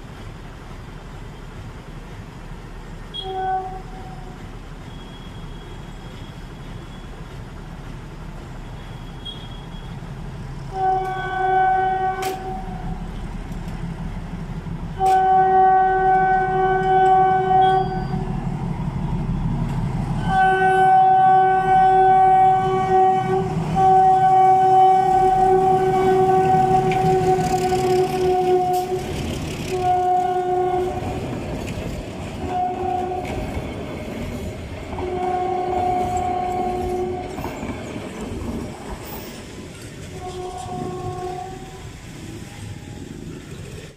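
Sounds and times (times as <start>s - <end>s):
locomotive horn blasts: 3.1s - 4.2s, 10.7s - 12.9s, 15.0s - 18.3s, 20.2s - 31.2s, 32.4s - 33.5s, 35.0s - 37.4s, 40.1s - 41.8s.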